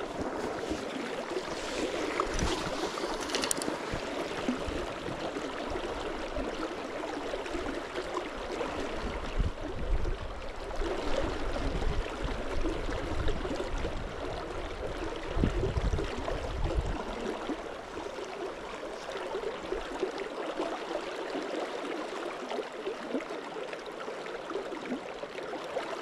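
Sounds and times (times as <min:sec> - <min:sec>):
river water rushing: 0:00.0 - 0:09.4.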